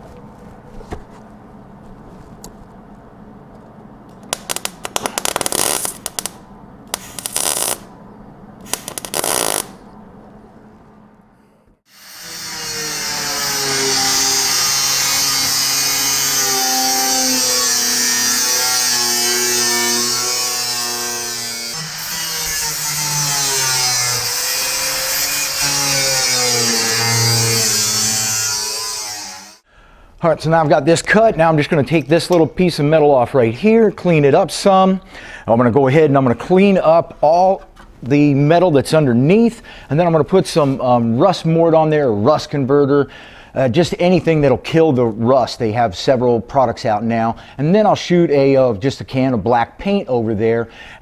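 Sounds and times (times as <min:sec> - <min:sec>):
welder crackling: 0:04.2 - 0:07.9, 0:08.6 - 0:09.8
power tool cutting sheet steel: 0:08.7 - 0:09.7, 0:11.9 - 0:29.6.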